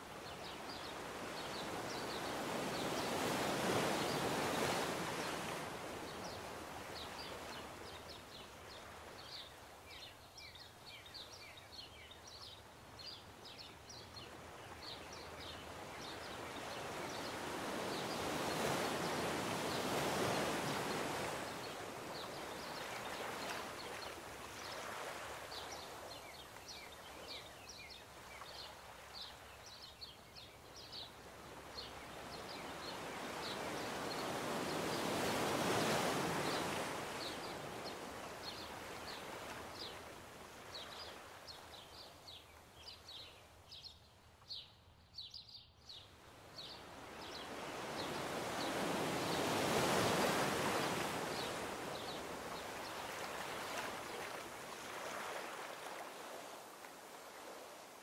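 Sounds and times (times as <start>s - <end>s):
small birds chirping: 6.1s - 55.7s
surf washing onto beach: 47.0s - 58.0s.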